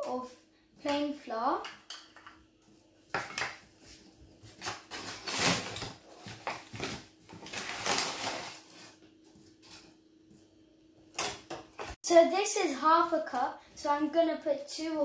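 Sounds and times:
paper flour bag rustling: 0:04.4 - 0:09.8.

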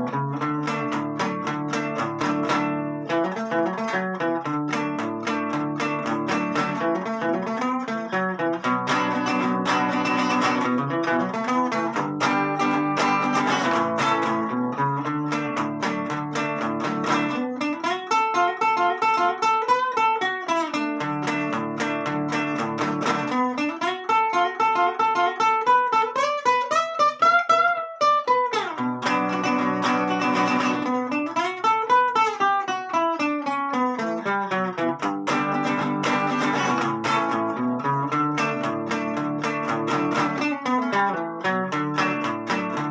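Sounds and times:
classical guitar playing: 0:00.0 - 0:42.9.

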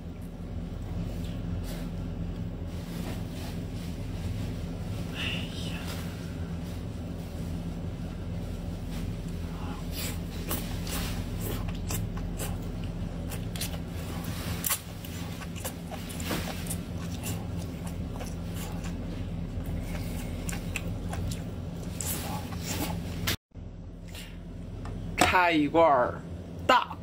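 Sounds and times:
steady low hum: 0:00.0 - 0:27.0
wet mouth sucking and chewing: 0:09.9 - 0:23.0.

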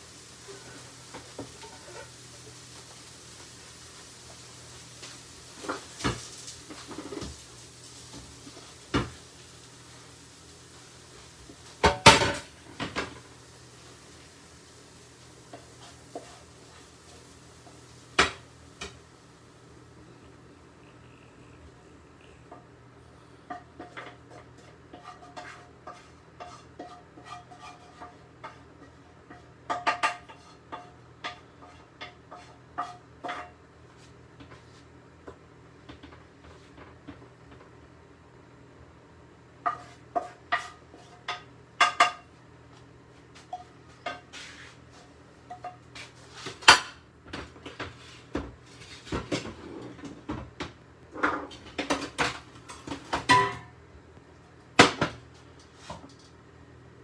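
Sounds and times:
utensil scraping frying pan: 0:00.2 - 0:14.2, 0:15.1 - 0:22.7, 0:23.4 - 0:33.6, 0:39.6 - 0:42.2, 0:47.6 - 0:50.3.

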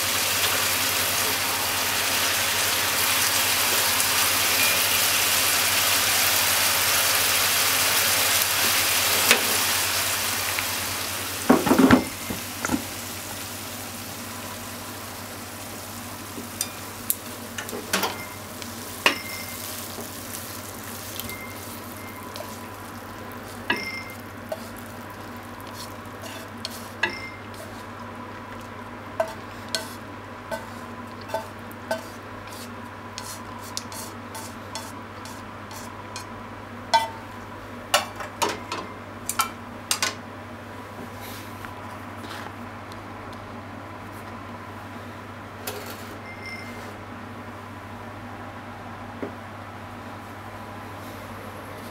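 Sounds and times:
food sizzling in a frying pan: 0:00.0 - 0:36.3
spatula clinking and scraping: 0:16.6 - 0:16.8, 0:19.0 - 0:20.0, 0:23.4 - 0:24.9, 0:25.6 - 0:27.8, 0:29.2 - 0:36.3.

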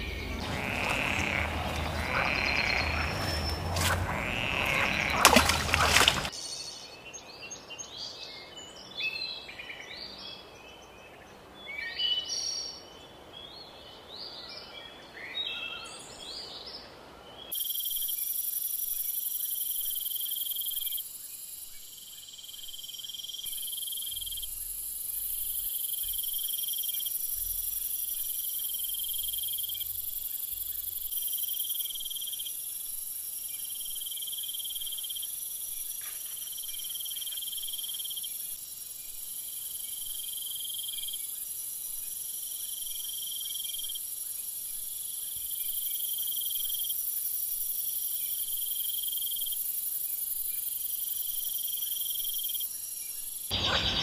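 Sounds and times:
bird calls: 0:00.0 - 0:06.4, 0:53.5 - 0:54.0
insects chirping: 0:00.0 - 0:06.8, 0:17.6 - 0:54.0.

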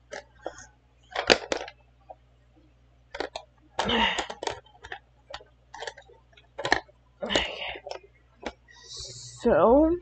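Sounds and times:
makeup tools clicking and tapping: 0:03.1 - 0:08.6.

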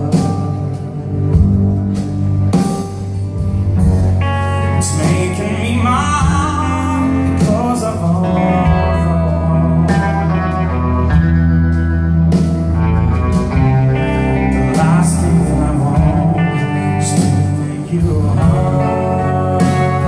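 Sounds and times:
blues band playing: 0:00.0 - 0:20.0
person singing: 0:03.7 - 0:11.2, 0:13.1 - 0:20.0.

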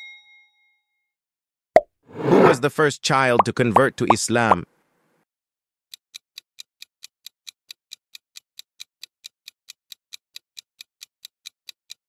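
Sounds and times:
quick clock ticks: 0:05.9 - 0:12.0.

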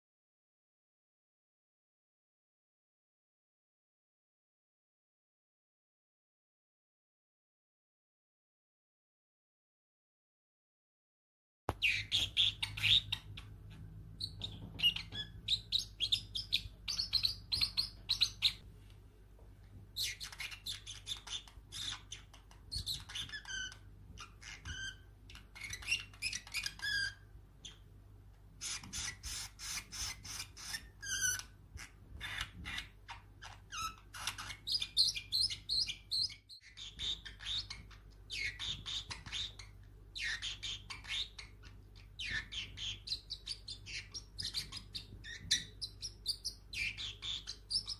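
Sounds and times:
parrotlet chirping: 0:11.7 - 0:18.6, 0:20.0 - 0:28.0, 0:28.6 - 0:47.9.

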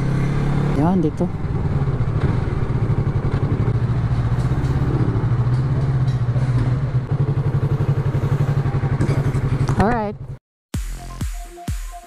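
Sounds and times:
motorcycle engine idling: 0:00.8 - 0:10.4.

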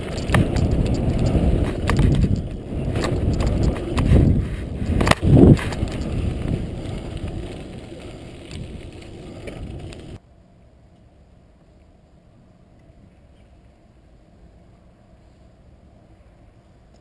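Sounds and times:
bicycle tyres rumbling on dirt: 0:00.0 - 0:10.2
wind on microphone: 0:00.0 - 0:10.2
faint outdoor background: 0:00.0 - 0:17.0.

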